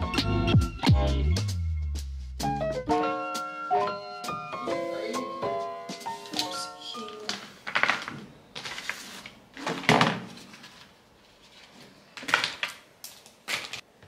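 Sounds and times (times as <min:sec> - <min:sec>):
piano tune: 0:00.0 - 0:07.6
small objects rustling and clattering: 0:06.2 - 0:13.9.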